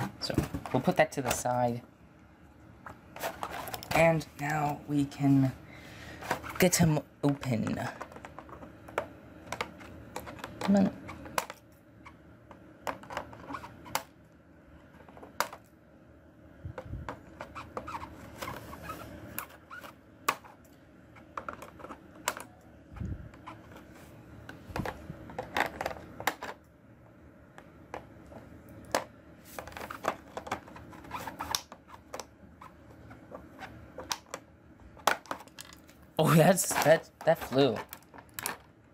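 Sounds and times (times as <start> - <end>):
plastic crackling: 2.8 - 4.9, 27.9 - 38.9.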